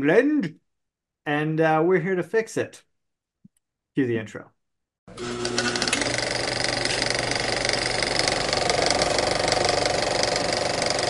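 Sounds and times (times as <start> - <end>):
film projector clattering: 5.1 - 11.0.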